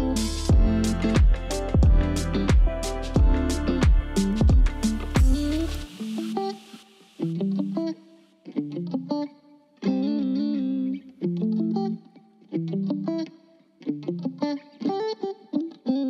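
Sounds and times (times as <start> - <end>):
plucked guitar music: 0.0 - 16.0.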